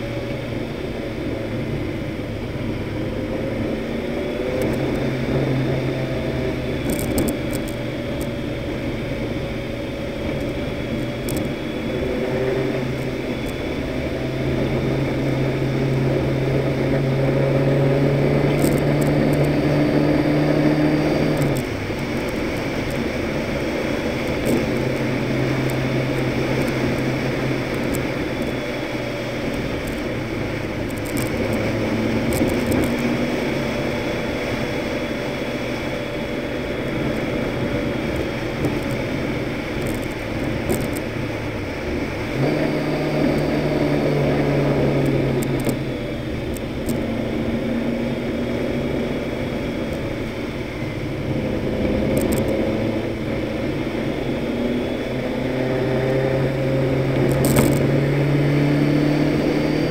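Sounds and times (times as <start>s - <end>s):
truck engine and tyre noise: 0.0s - 59.9s
sharp ticks: 57.2s - 57.9s.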